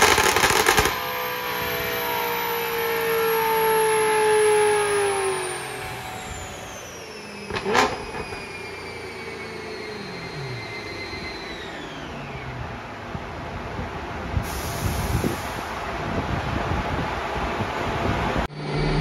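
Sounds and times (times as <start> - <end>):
sharp crack: 0.0 - 1.2
drivetrain and rollers whining: 0.0 - 14.3, 16.0 - 19.0.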